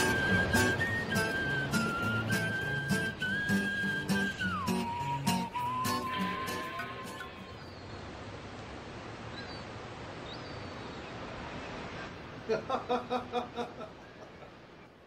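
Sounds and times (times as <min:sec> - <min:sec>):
person laughing: 0:12.4 - 0:14.5.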